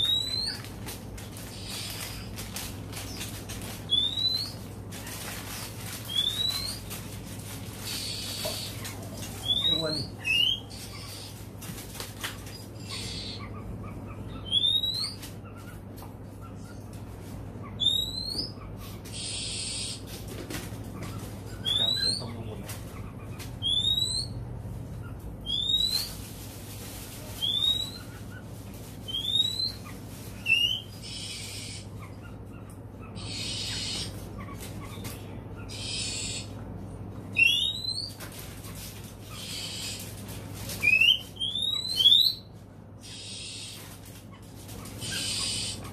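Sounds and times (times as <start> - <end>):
bird harsh hissing notes: 19.1 - 20.0, 30.6 - 31.9, 33.2 - 34.1, 35.7 - 36.5, 39.3 - 40.1, 43.0 - 43.9, 45.0 - 45.9.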